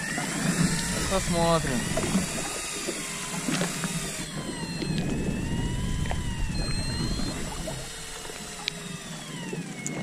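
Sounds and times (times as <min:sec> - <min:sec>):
low steady rumble: 0:00.0 - 0:09.8
fishing reels whining: 0:00.0 - 0:10.0
faint clicks: 0:08.2 - 0:08.8.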